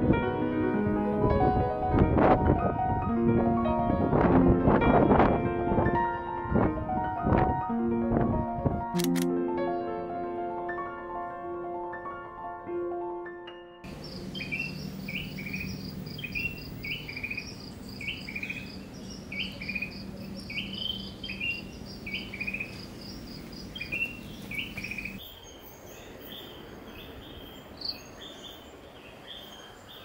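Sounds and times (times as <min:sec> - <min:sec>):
low hum: 0:13.9 - 0:25.2
insect chorus: 0:13.9 - 0:30.0
insects trilling: 0:13.9 - 0:30.0.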